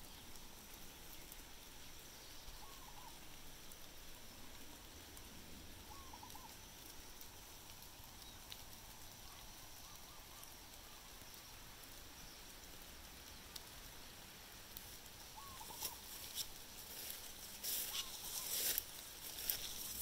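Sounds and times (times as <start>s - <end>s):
steady background hiss: 0.0s - 20.0s
faint animal calls: 2.2s - 3.4s, 5.8s - 6.9s, 8.2s - 11.6s, 15.2s - 20.0s.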